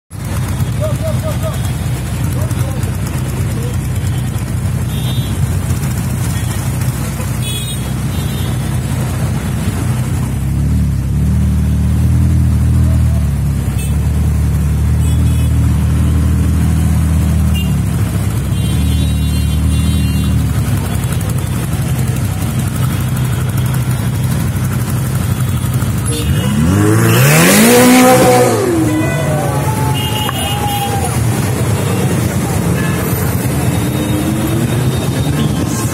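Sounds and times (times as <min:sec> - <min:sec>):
engines idling in traffic: 0:00.1 - 0:35.9
car engine revving and accelerating: 0:26.3 - 0:29.7.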